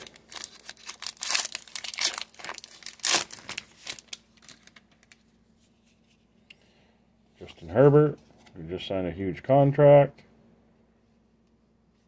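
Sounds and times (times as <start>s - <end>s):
card pack wrapper crinkling: 0.0s - 5.2s.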